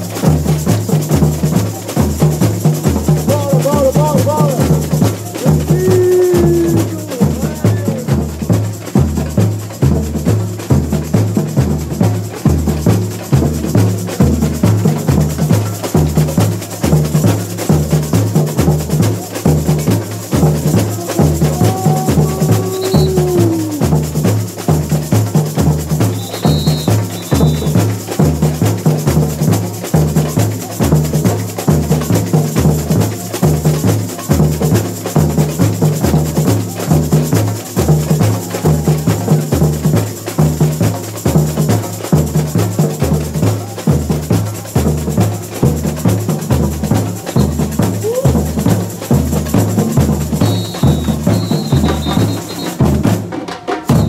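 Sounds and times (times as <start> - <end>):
bass drums beating: 0.0 - 54.0
dense higher percussion: 2.0 - 8.8, 17.2 - 26.8.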